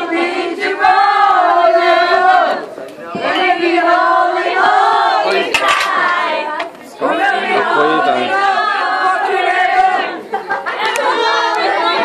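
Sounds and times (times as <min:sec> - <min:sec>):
group of people singing: 0:00.0 - 0:12.0.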